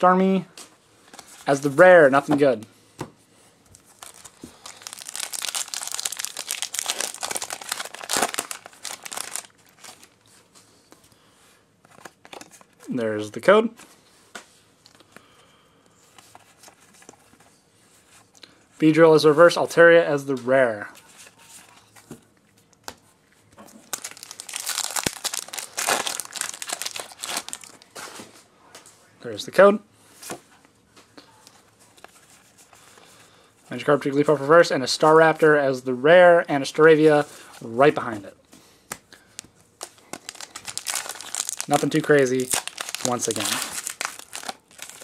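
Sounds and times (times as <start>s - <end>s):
foil wrapper crinkling: 3.8s - 10.2s, 23.8s - 27.9s, 39.4s - 45.0s.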